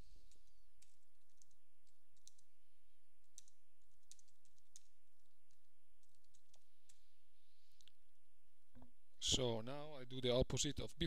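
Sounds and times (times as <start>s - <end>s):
computer keyboard typing: 0.2s - 2.5s, 3.2s - 7.0s.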